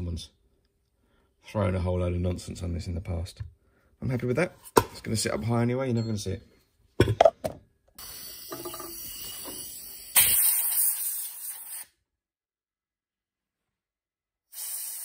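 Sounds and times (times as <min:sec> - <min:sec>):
compressed air blow gun hissing: 0:10.2 - 0:11.8, 0:14.5 - 0:15.0.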